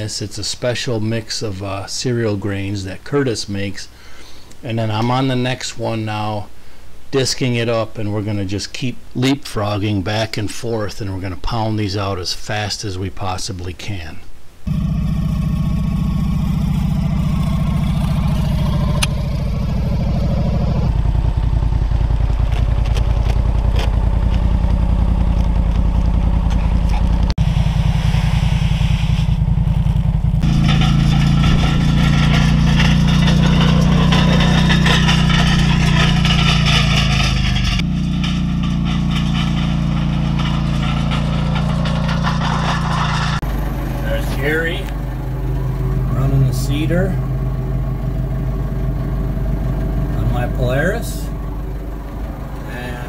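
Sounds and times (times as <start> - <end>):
atv engine running: 14.7 - 53.0.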